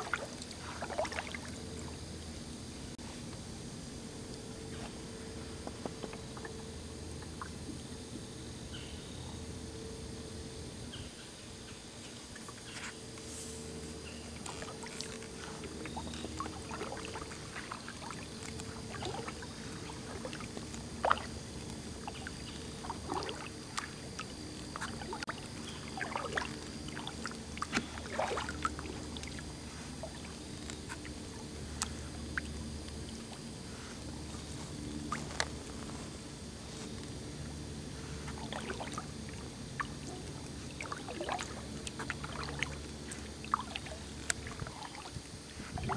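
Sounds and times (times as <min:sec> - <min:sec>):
water drips and splashes: 0:00.0 - 0:01.6, 0:14.4 - 0:33.4, 0:38.2 - 0:45.9
steady low hum: 0:00.0 - 0:45.9.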